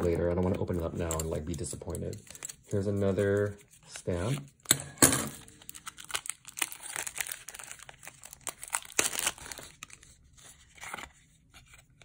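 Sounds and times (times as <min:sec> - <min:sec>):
cellophane crinkling and tearing: 0:05.3 - 0:12.0.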